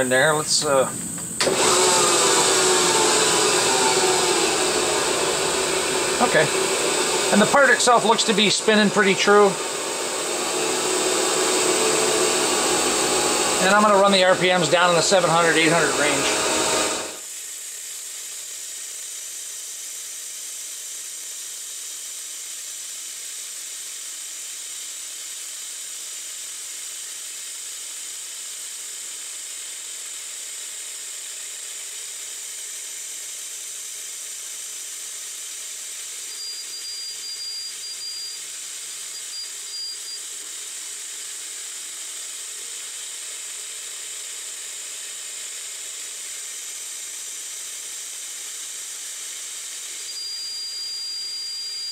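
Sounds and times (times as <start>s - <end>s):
thin high whine: 0.0s - 17.2s, 36.2s - 40.3s, 50.0s - 51.9s
coolant mist hissing: 1.9s - 17.2s.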